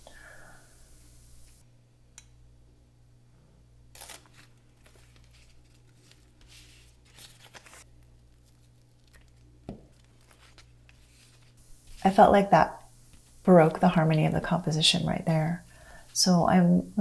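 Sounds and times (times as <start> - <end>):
paper tearing and rustling: 4.0 - 11.6.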